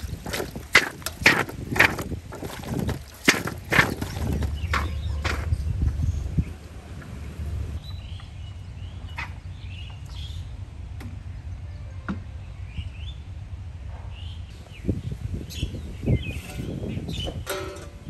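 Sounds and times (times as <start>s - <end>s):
low thuds: 0.0s - 7.8s
birds chirping: 0.0s - 13.4s, 14.0s - 17.9s
low outdoor rumble: 0.0s - 18.0s.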